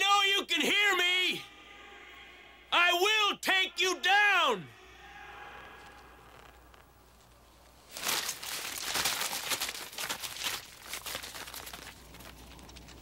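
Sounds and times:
paper rustling and crumpling: 0:05.8 - 0:13.0.

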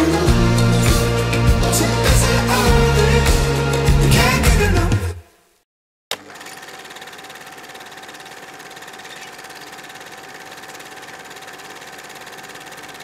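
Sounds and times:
film projector clattering: 0:06.1 - 0:13.0
projector whine: 0:06.1 - 0:13.0.

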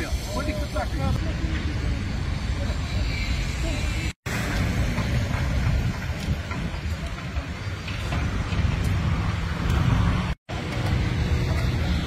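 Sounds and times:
heavy construction machinery rumble: 0:04.3 - 0:12.0.

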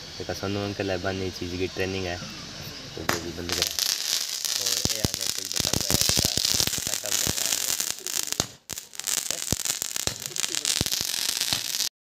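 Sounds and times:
crackling hiss: 0:00.0 - 0:12.0
firecrackers cracking and banging: 0:03.1 - 0:11.9.

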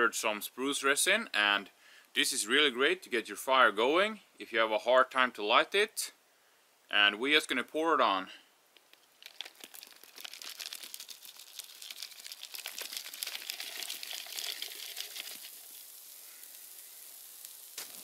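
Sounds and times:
resin crackling on hot embers: 0:08.7 - 0:18.0.

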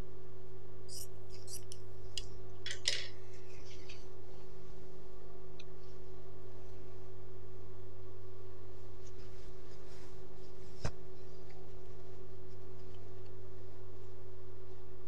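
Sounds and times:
low electrical hum: 0:00.0 - 0:15.0
cloth rustling: 0:08.8 - 0:12.9.

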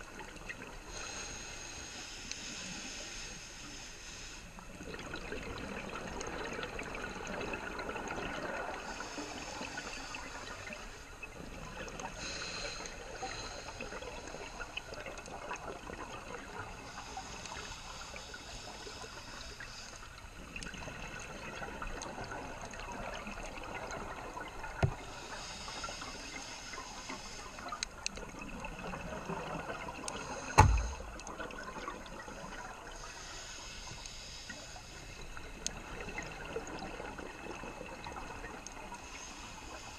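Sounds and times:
scuba regulator breathing: 0:00.9 - 0:04.6, 0:12.1 - 0:14.9, 0:16.8 - 0:20.2, 0:24.8 - 0:28.0, 0:32.9 - 0:35.6
underwater knocks: 0:30.6 - 0:31.2
exhaled bubbles: 0:35.0 - 0:39.2.

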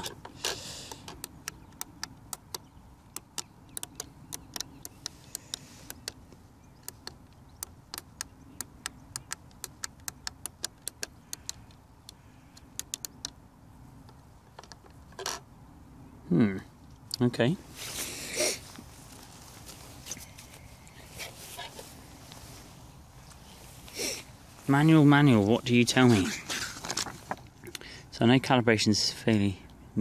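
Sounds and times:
transmitter buttons clicking: 0:00.9 - 0:13.4.

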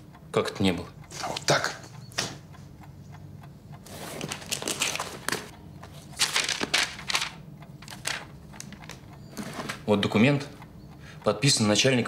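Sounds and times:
paper rustling and crackling: 0:03.9 - 0:09.8.

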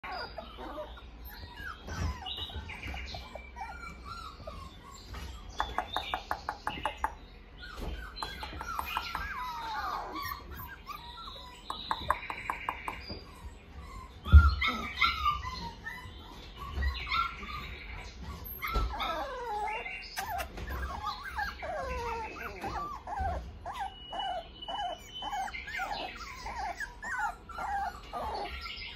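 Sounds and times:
puppies whining and squeaking: 0:00.0 - 0:28.9.

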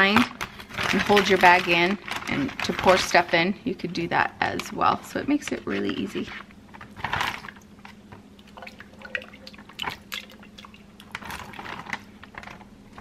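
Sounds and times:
faint steady hum: 0:00.0 - 0:13.0
soup pouring and dripping: 0:08.3 - 0:11.7.

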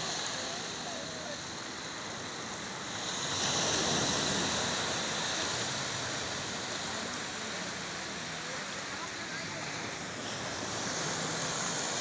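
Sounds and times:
small surf washing up beach: 0:00.0 - 0:12.0.

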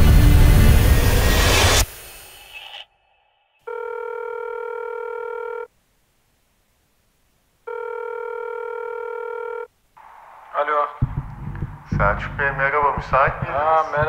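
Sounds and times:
telephone ringback tone: 0:03.7 - 0:05.7, 0:07.7 - 0:09.7.

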